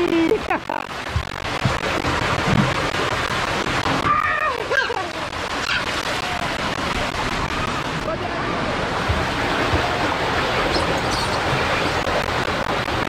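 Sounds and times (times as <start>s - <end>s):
water rushing down a water slide: 0.0s - 13.0s
water splashing into pool: 0.0s - 13.0s
faint children's voices: 4.0s - 6.7s.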